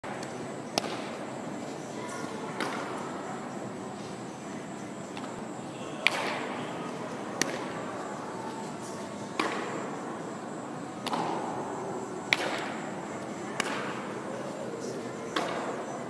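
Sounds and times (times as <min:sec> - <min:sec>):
baseballs smacking into gloves: 0:00.2 - 0:01.2, 0:12.3 - 0:12.8, 0:13.6 - 0:14.0.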